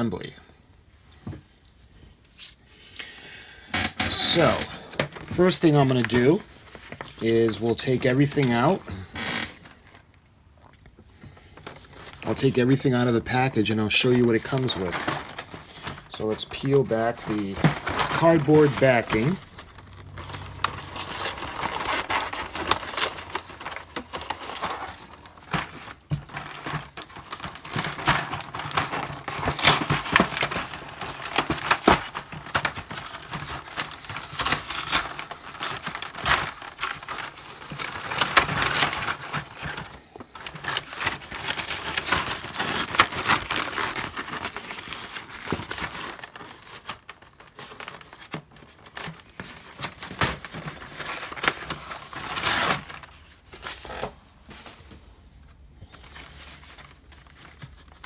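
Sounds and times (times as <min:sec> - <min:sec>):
packaging crinkling: 0:03.7 - 0:58.0
cardboard peeling and tearing: 0:16.9 - 0:49.2, 0:49.8 - 0:53.9.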